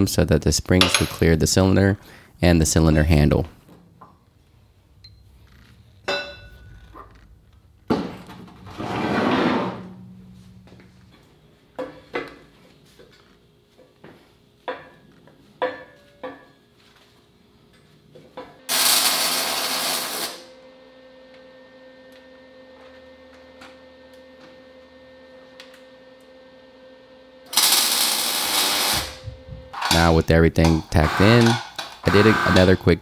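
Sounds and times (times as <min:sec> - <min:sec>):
faint steady hum: 0:00.0 - 0:08.8, 0:09.5 - 0:18.7
arc welder hissing bursts: 0:18.7 - 0:20.5, 0:27.5 - 0:29.2.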